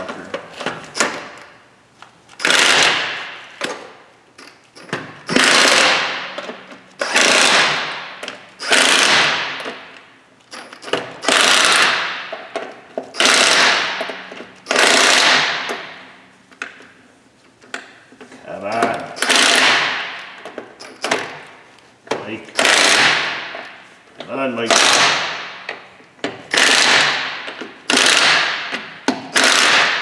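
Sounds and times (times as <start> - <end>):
impact wrench bursts: 2.4 - 3.9, 4.9 - 9.9, 10.7 - 12.5, 13.1 - 16.0, 19.2 - 21.4, 22.5 - 23.6, 24.6 - 25.8, 26.4 - 30.0.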